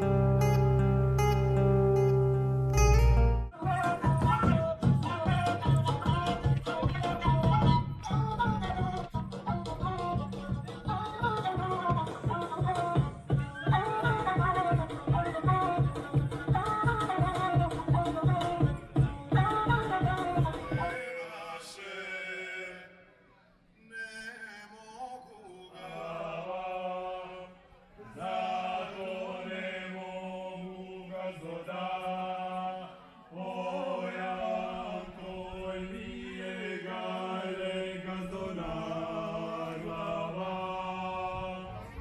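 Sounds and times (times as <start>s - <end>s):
male voices singing in harmony: 3.6s - 9.1s, 13.7s - 23.0s, 23.8s - 42.0s.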